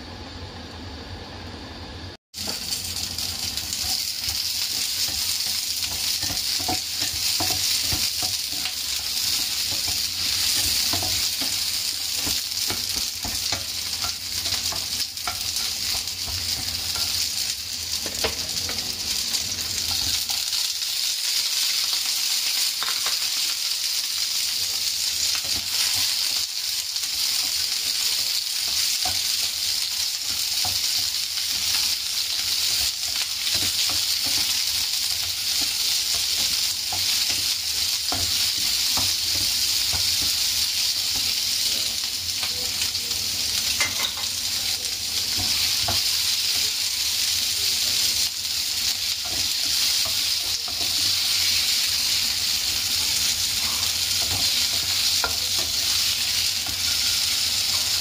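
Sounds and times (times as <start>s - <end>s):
vegetables sizzling in oil: 0.0s - 58.0s
spatula scraping and tapping: 4.7s - 17.2s, 30.2s - 40.4s.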